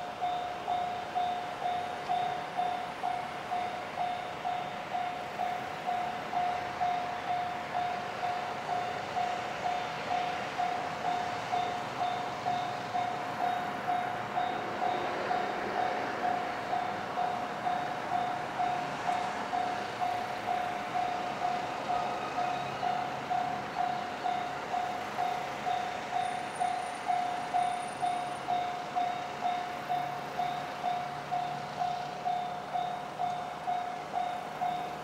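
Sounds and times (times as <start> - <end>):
railroad crossing warning bell: 0.0 - 35.0.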